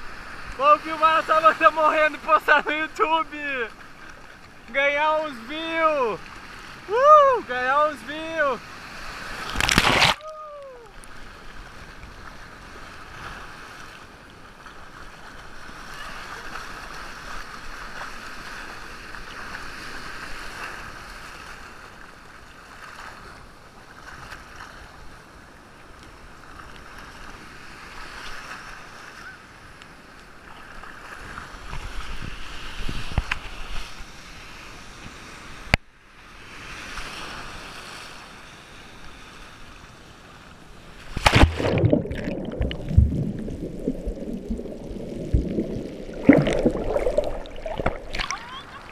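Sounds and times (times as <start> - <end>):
ocean surf washing through shallows: 0.0 - 48.9.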